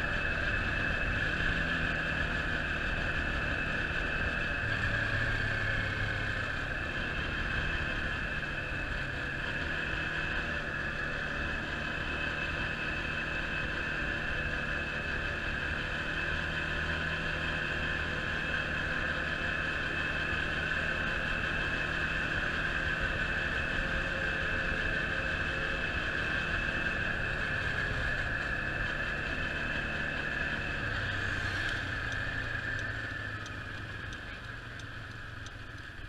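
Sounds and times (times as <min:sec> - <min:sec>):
quad bike engine running: 0:00.0 - 0:36.0.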